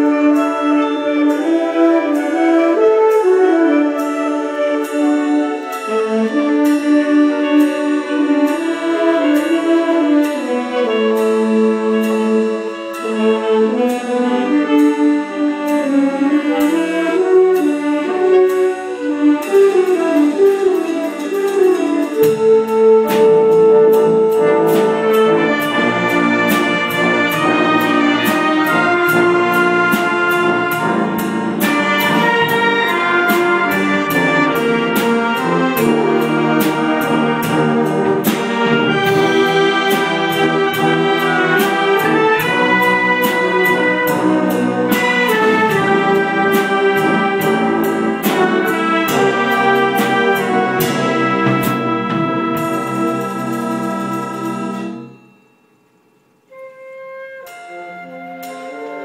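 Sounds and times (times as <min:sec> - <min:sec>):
concert band playing: 0:00.0 - 0:55.4, 0:56.5 - 0:59.0
percussion beat: 0:18.6 - 0:55.4.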